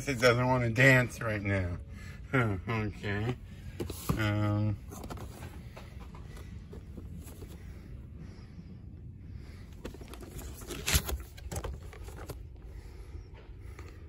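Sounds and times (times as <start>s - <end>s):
low steady background hum: 0.0s - 14.0s
handling noise of boxed toy: 3.6s - 7.9s, 9.6s - 12.7s.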